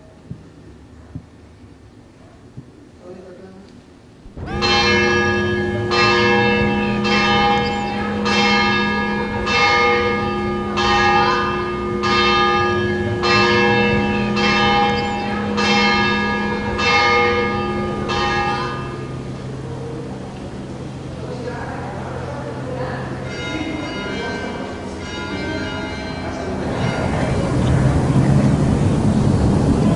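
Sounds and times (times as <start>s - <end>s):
church bells ringing: 4.3s - 29.9s
bell hum: 4.4s - 20.4s, 22.8s - 29.0s.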